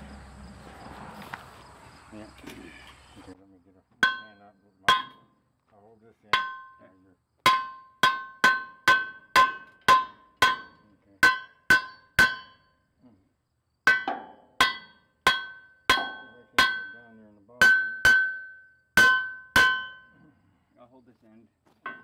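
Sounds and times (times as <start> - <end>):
hammer striking steel: 4.0 - 5.3, 6.3 - 6.8, 7.4 - 12.7, 13.9 - 20.1.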